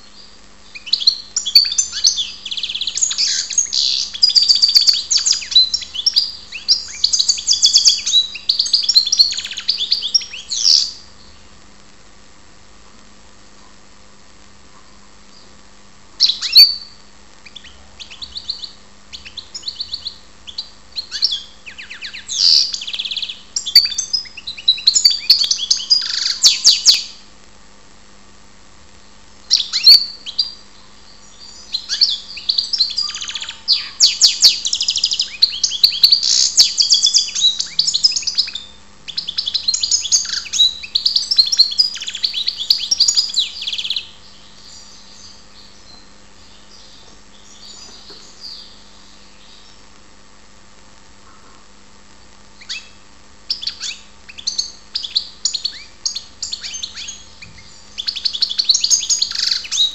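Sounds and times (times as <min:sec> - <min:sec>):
goldfinch twittering song: 0:00.7 - 0:11.4, 0:35.3 - 0:49.8, 0:53.5 - 0:59.9.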